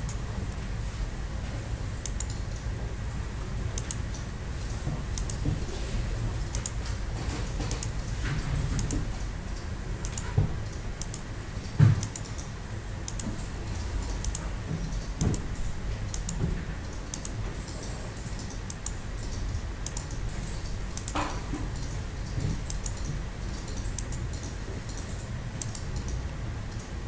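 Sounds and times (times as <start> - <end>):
computer mouse clicking: 2.0 - 2.7, 3.8 - 4.3, 5.2 - 5.5, 6.4 - 6.8, 7.6 - 8.0, 8.7 - 12.5, 13.1 - 27.0.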